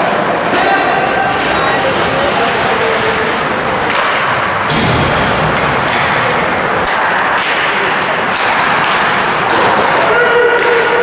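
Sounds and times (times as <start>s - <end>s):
crowd noise: 0.0s - 11.0s
skates on ice: 1.3s - 11.0s
hockey sticks and puck knocking: 3.7s - 11.0s.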